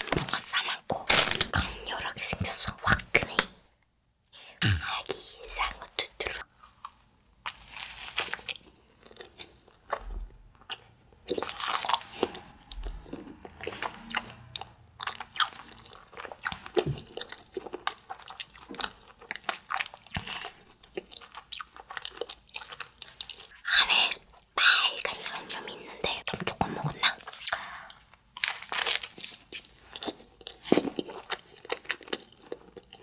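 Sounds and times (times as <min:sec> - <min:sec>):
crunchy wafer chewing: 0:06.4 - 0:10.0, 0:10.6 - 0:23.6, 0:27.1 - 0:33.0.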